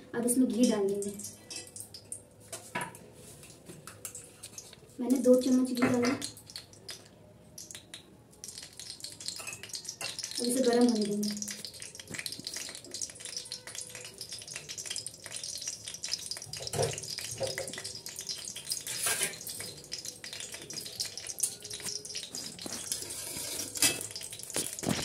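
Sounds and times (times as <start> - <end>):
ghee sizzling and crackling: 0.0 - 25.0
spatula stirring: 11.3 - 25.0.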